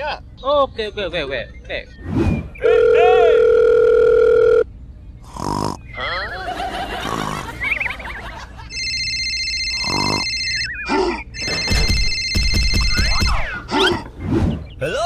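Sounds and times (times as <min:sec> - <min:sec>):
trilling phone ringtone: 0:02.6 - 0:04.7, 0:08.4 - 0:13.5
sliding cartoon-style tones: 0:08.7 - 0:14.9.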